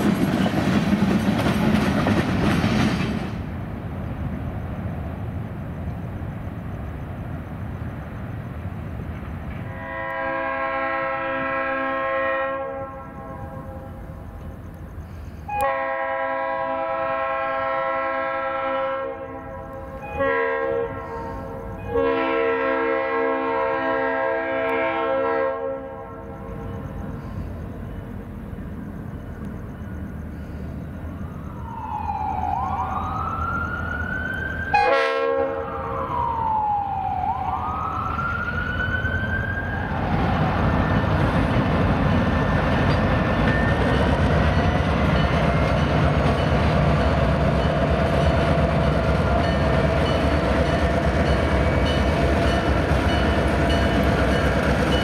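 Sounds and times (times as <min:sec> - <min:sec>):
diesel locomotive engines running: 0:00.0 - 0:55.0
locomotive horn: 0:09.6 - 0:14.0, 0:15.5 - 0:26.5, 0:34.7 - 0:36.2
siren wailing: 0:31.2 - 0:41.2.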